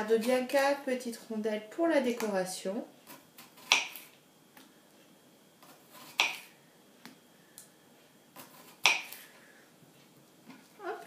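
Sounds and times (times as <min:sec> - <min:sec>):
knife chopping on wooden board: 0:03.1 - 0:04.1, 0:05.6 - 0:06.5, 0:08.4 - 0:09.2.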